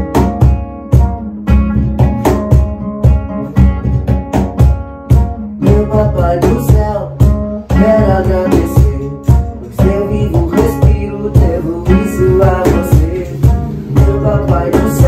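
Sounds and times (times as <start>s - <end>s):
acoustic guitars strummed: 0.0s - 15.0s
young man singing: 5.4s - 15.0s.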